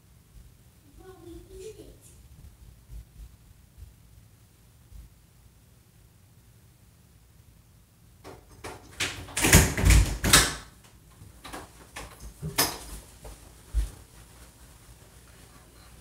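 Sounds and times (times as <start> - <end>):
knocks and thuds: 8.2 - 10.6.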